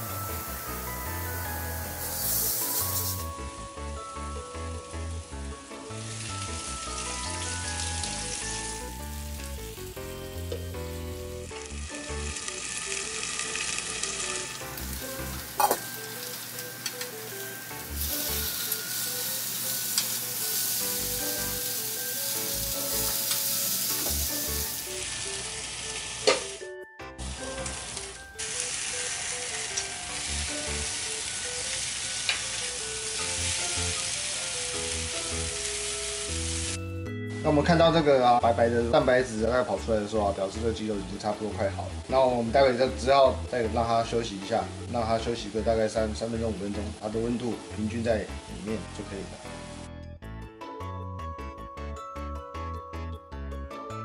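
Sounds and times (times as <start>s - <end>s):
chicken sizzling on grill pan: 0.0s - 3.5s, 4.6s - 26.6s, 27.2s - 36.8s
soft background music: 0.0s - 54.0s.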